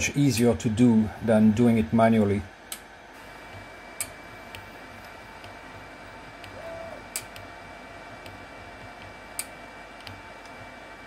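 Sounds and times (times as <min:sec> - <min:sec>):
faint steady hum: 0:00.0 - 0:11.0
motor whine: 0:03.1 - 0:09.4.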